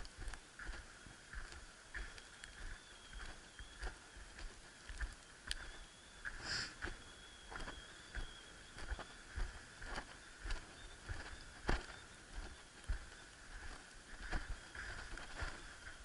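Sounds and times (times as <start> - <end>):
faint steady high tone: 0.0 - 16.0
footsteps in snow: 0.0 - 16.0
short hiss: 6.4 - 6.8.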